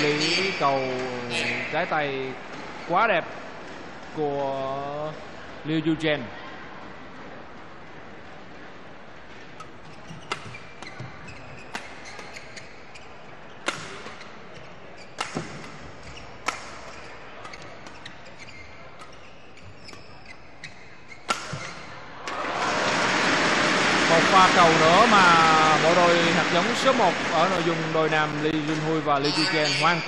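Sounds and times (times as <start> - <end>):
sports hall background: 0.0 - 30.0
racket hitting shuttlecock: 9.6 - 12.7, 13.6 - 14.3, 15.2 - 18.2, 18.9 - 23.8.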